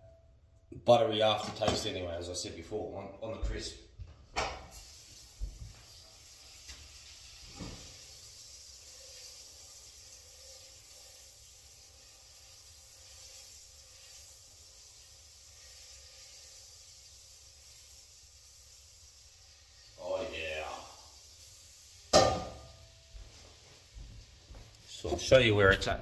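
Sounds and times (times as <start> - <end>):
butter sizzling in a frying pan: 4.4 - 25.2.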